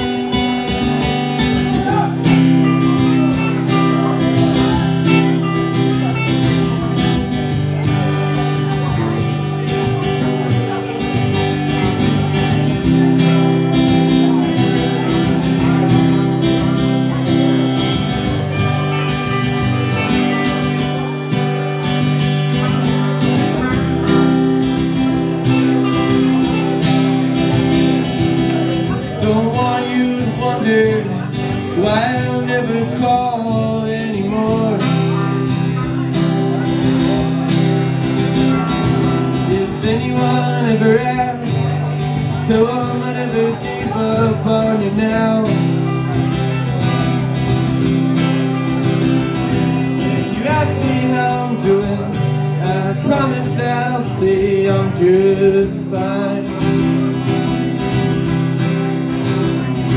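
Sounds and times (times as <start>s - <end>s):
man singing: 0.0s - 47.8s, 48.6s - 58.4s
acoustic guitar strumming chords: 0.0s - 59.9s
electric guitar: 0.0s - 59.9s.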